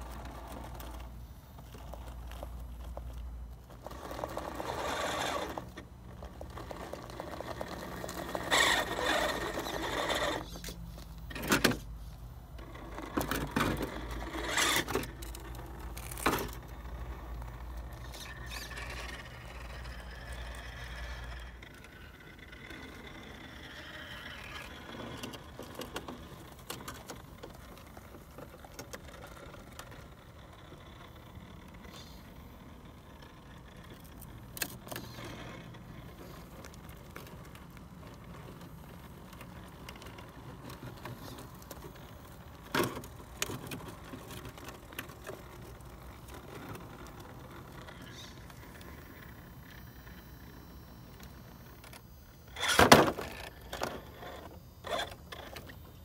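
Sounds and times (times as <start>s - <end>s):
tyres scraping on rock: 0.0s - 11.5s, 12.6s - 31.0s, 52.5s - 55.7s
electric motor whirring: 3.8s - 5.8s, 6.4s - 10.8s, 46.0s - 56.0s.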